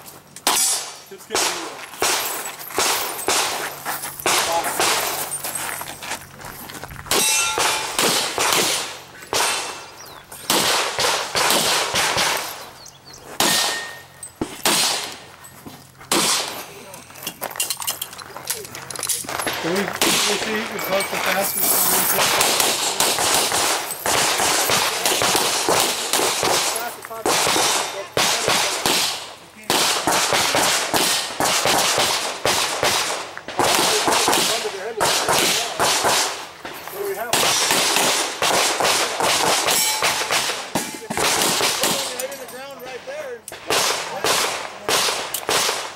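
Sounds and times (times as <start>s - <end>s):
pistol shots echoing: 0.4s - 3.6s, 4.2s - 5.2s, 7.1s - 12.8s, 13.4s - 15.2s, 16.1s - 16.6s, 19.5s - 20.8s, 21.8s - 36.5s, 37.3s - 42.2s, 43.5s - 45.9s
metallic ring: 7.2s - 8.0s, 13.5s - 14.4s, 39.7s - 40.3s.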